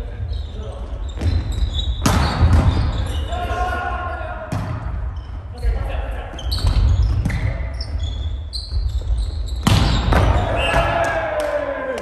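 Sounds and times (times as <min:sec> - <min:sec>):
sneaker squeaks on floor: 0:00.1 - 0:03.4, 0:04.8 - 0:10.8.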